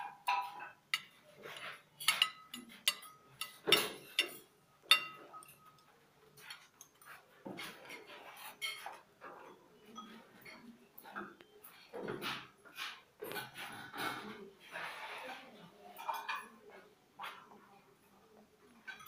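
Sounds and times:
spoon clinking on china plates: 0.2 - 9.0.

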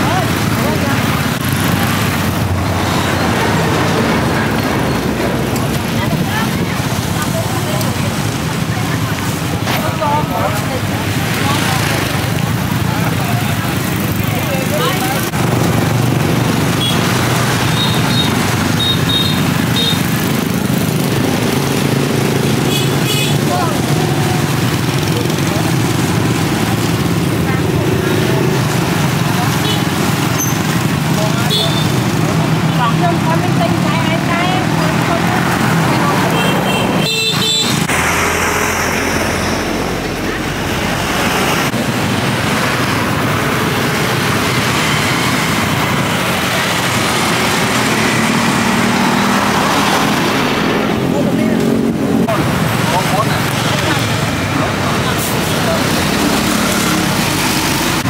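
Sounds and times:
passing traffic: 0.0 - 58.0
people's voices: 0.0 - 58.0.

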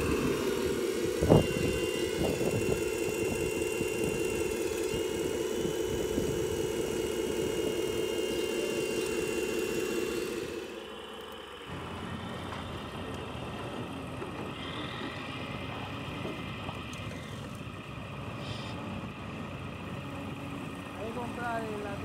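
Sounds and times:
thin high tone: 0.0 - 11.0
electric motor and gearbox whining: 0.0 - 22.0.

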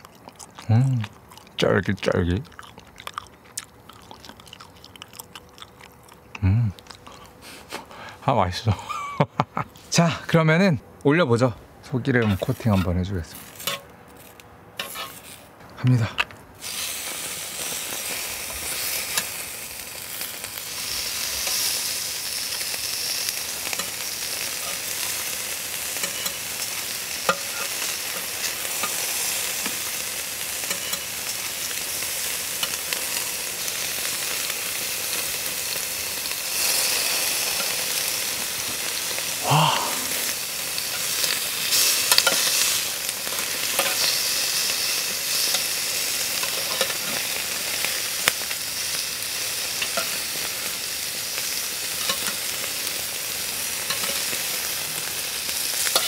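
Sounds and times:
beef sizzling on a grill: 12.2 - 15.6, 16.6 - 56.0.

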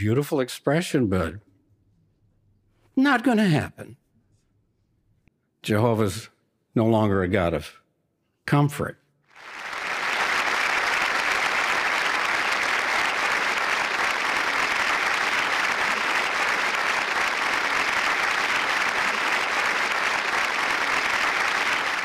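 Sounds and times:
audience applauding: 9.3 - 22.0.

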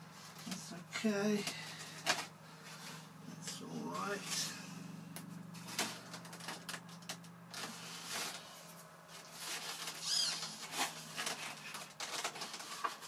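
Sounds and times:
high squeak: 10.0 - 10.6.

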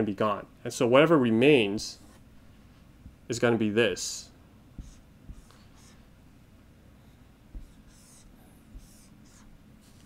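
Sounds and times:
marker scratching on whiteboard: 1.8 - 2.2, 4.8 - 6.1, 7.5 - 10.0.

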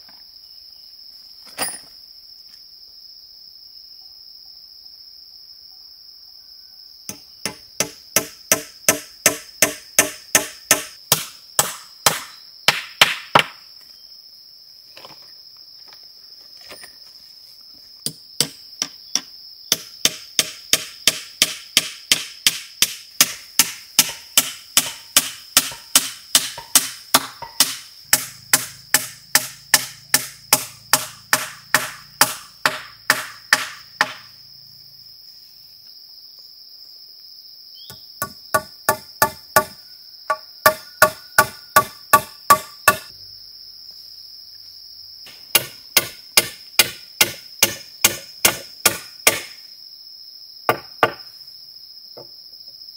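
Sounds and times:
tool striking wood: 7.1 - 13.6, 18.0 - 34.3, 37.9 - 43.1, 45.5 - 49.6, 50.7 - 51.3
high-pitched insect drone: 23.9 - 36.5.

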